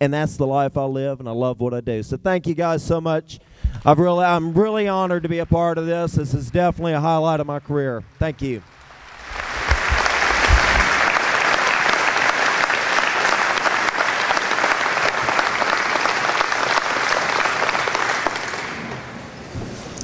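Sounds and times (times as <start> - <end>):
audience applauding: 3.9 - 19.4.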